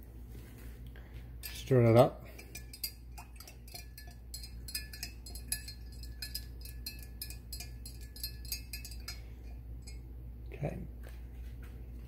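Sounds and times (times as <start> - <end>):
stir stick clinking in glass jar: 1.4 - 10.1.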